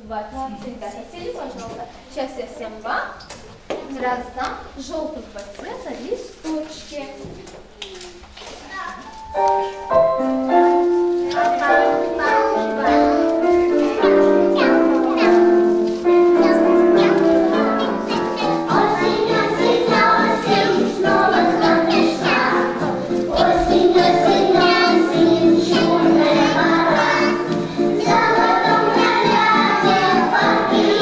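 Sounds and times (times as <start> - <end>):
musical accompaniment: 9.0 - 31.0
children singing: 11.4 - 31.0.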